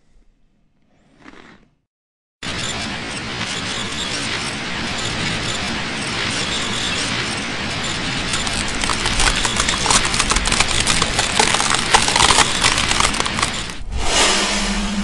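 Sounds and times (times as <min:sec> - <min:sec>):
rapid crackling and clicking: 0:05.0 - 0:13.8.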